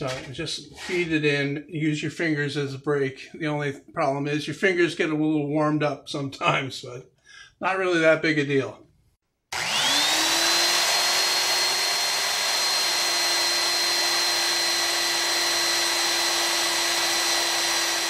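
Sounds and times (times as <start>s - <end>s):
belt sander whining: 9.5s - 18.0s.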